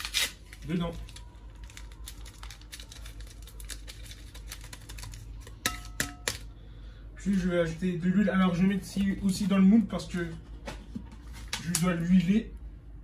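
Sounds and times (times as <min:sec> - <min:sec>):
paper sachet crinkling: 0:00.0 - 0:05.6.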